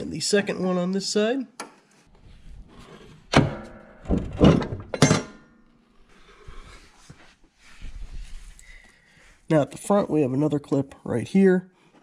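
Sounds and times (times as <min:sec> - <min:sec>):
heavy metal knocks and clanks: 0:03.3 - 0:05.5
metal ringing: 0:03.4 - 0:05.6.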